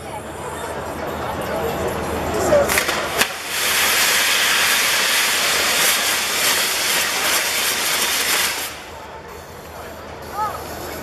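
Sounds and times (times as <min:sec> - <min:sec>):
fireworks hissing: 0:02.7 - 0:11.0.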